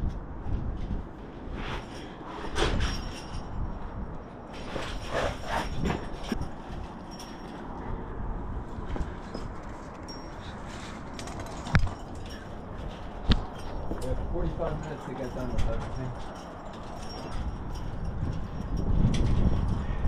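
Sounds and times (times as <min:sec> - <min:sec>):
metal climbing gear clinking: 0:00.0 - 0:08.1, 0:08.8 - 0:20.0
wind buffeting microphone: 0:00.0 - 0:20.0
rustling and scraping on rock: 0:01.4 - 0:03.5, 0:04.5 - 0:07.6.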